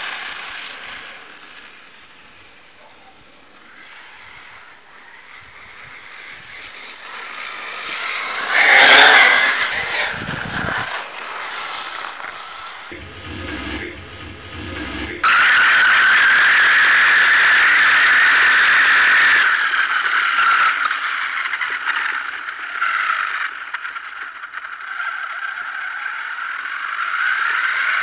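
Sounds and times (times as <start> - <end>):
tyres rattling on loose dirt: 0.0 - 13.4
electric motor whine: 0.0 - 19.5.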